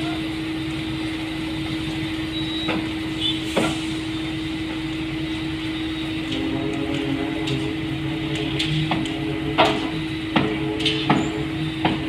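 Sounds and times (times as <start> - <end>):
sharp knocks: 8.6 - 12.0.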